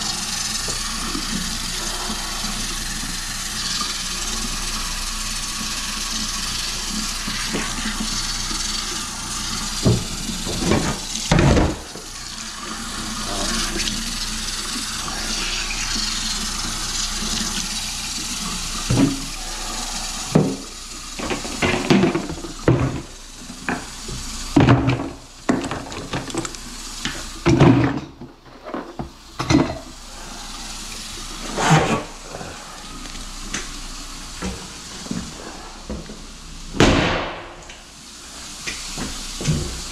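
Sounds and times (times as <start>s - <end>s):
faucet running into steel sink: 0.0s - 36.8s, 37.4s - 39.9s.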